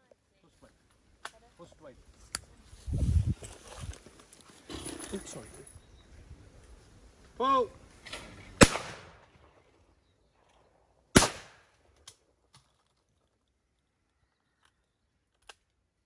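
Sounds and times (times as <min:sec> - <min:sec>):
shotgun shots: 0:08.2 - 0:09.4, 0:11.1 - 0:11.7.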